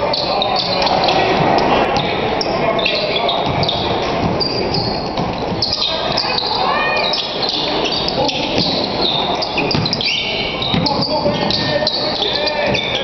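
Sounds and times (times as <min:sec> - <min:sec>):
crowd chatter: 0:00.0 - 0:13.0
sneaker squeaks on hardwood: 0:00.0 - 0:13.0
ball bouncing: 0:00.8 - 0:02.3, 0:03.4 - 0:06.3, 0:08.4 - 0:08.8, 0:09.4 - 0:13.0.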